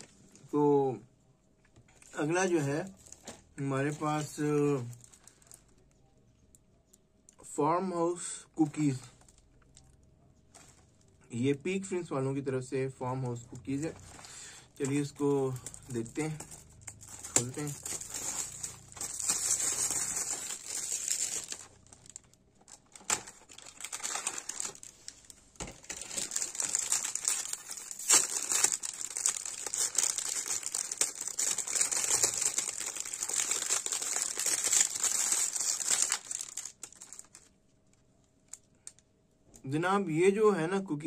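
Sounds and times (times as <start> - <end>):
plastic wrapping crinkling: 1.9 - 7.0, 13.2 - 39.1.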